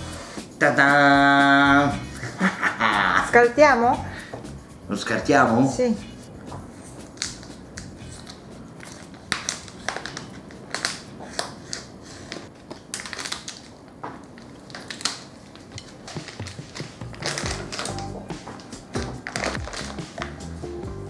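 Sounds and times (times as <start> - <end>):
plastic film crinkling: 6.9 - 20.4.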